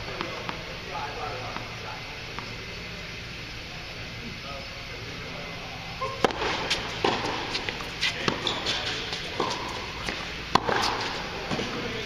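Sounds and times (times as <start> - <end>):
tennis ball bouncing: 0.0 - 0.6, 2.3 - 2.6, 6.0 - 11.8
tennis racket hitting ball: 6.0 - 11.8.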